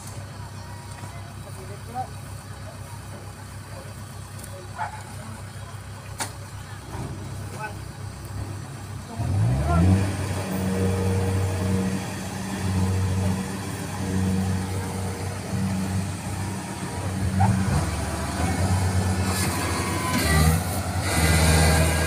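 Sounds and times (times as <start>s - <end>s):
combine harvester diesel engine: 0.0s - 22.0s.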